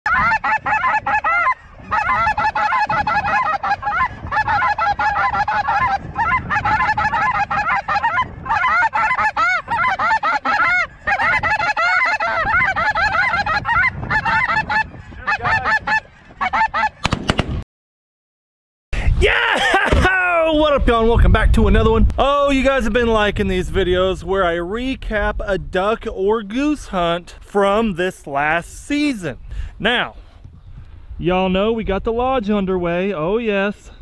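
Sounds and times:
flock of geese calling: 0.1s - 17.0s.

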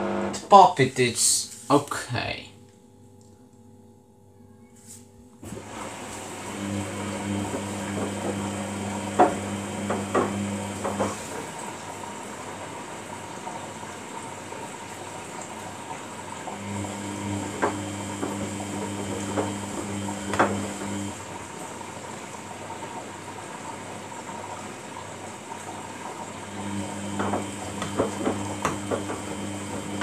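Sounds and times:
washing machine drum motor hum: 0.0s - 0.6s, 5.4s - 30.0s
wet load knocking in drum: 27.1s - 30.0s.

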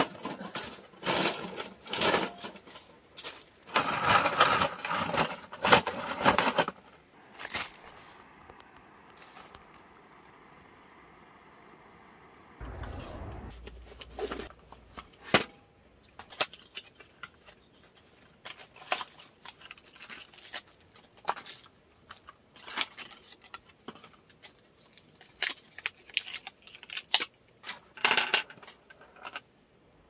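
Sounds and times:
plastic crinkling: 16.0s - 27.4s.

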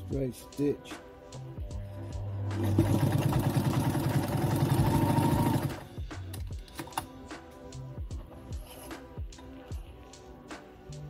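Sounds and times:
background music: 0.0s - 11.0s
sewing machine stitching: 2.6s - 5.9s.

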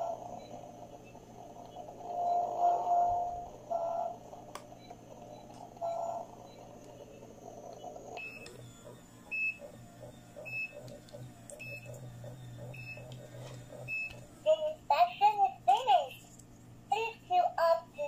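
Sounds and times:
low pulsing hum: 0.0s - 17.5s.

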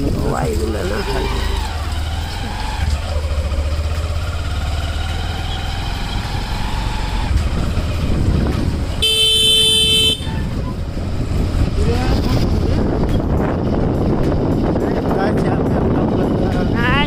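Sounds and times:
motorcycle engine rumbling: 0.0s - 17.0s
horn honking: 9.0s - 10.6s.

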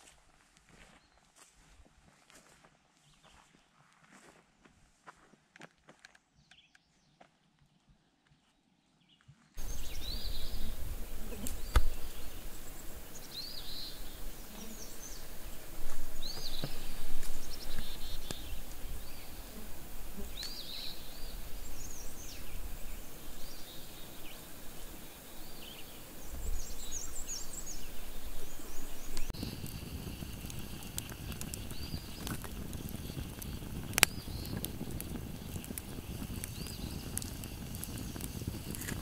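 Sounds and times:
songbirds chirping: 3.0s - 3.7s, 6.3s - 39.0s
low gusting rumble: 9.6s - 39.0s.

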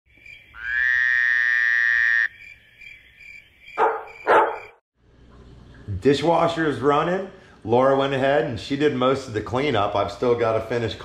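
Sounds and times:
frog call: 0.1s - 4.7s
frog croaks: 0.1s - 4.8s
high pulsing insect trill: 0.1s - 4.8s.

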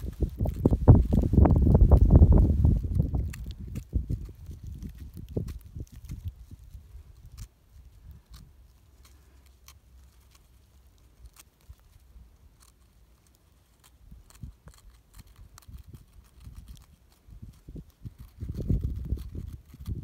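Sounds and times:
tweezers scratching gritty sand: 7.2s - 20.0s.

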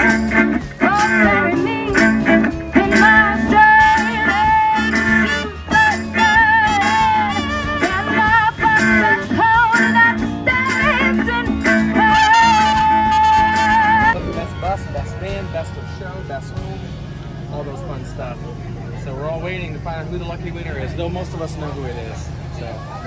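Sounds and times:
steady beat: 0.0s - 17.1s
trumpet: 0.0s - 17.2s
guitar: 0.0s - 23.0s
upright bass: 0.0s - 23.0s.

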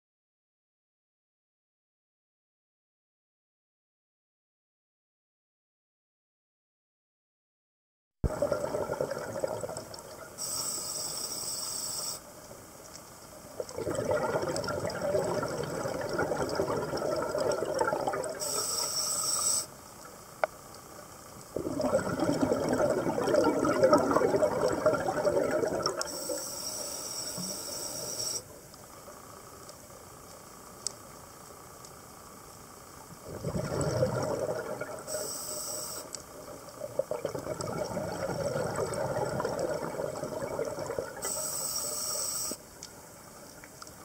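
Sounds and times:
exhaled bubbles rushing: 8.2s - 10.3s, 13.6s - 18.5s, 21.5s - 26.1s, 33.2s - 35.1s, 36.7s - 41.3s
regulator hissing inhalations: 10.4s - 12.2s, 18.4s - 19.7s, 26.1s - 28.5s, 35.1s - 36.1s, 41.2s - 42.6s.

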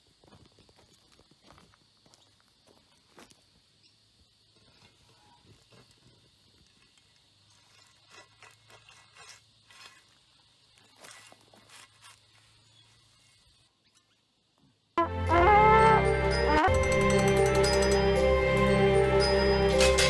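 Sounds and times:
shovel scraping leaf litter and dirt: 7.5s - 13.5s.

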